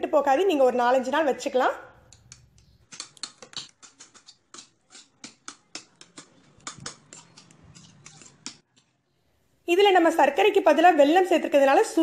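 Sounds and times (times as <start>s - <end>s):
spoon scraping metal plate: 2.3s - 9.0s.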